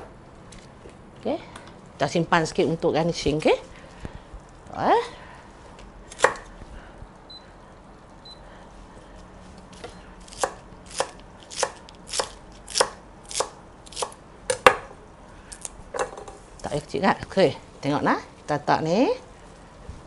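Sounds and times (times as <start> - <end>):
knife chopping on wooden board: 10.3 - 14.9.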